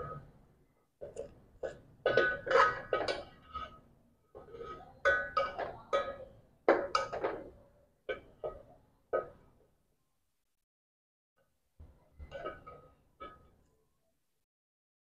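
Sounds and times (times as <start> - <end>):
steel ladle clinking on pot: 2.0 - 3.8.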